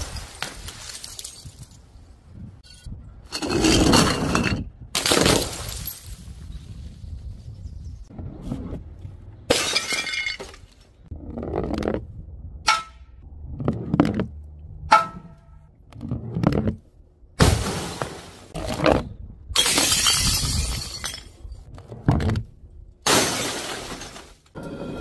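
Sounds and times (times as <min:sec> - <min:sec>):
glass shattering: 0:09.5 - 0:10.6, 0:19.6 - 0:21.5, 0:23.1 - 0:24.4
smashing impacts: 0:23.0 - 0:24.5.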